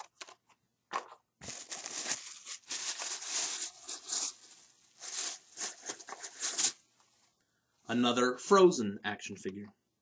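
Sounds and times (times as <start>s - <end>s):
wrapping paper crinkling and tearing: 1.4s - 6.8s.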